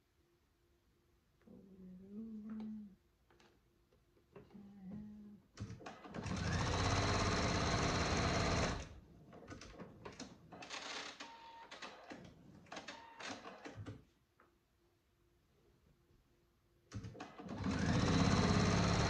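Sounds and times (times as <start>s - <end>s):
sewing machine stitching: 5.8s - 13.8s, 17.0s - 19.0s.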